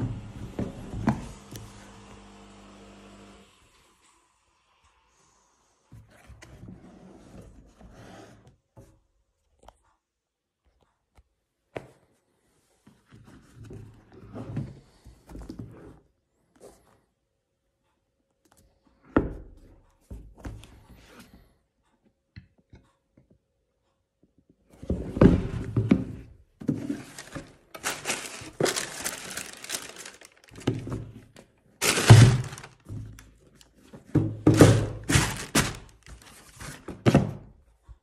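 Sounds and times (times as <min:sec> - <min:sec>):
tissue paper rustling: 0:26.7 - 0:31.2, 0:31.8 - 0:33.2, 0:34.6 - 0:37.0
shoes knocking on cardboard box: 0:34.0 - 0:37.5.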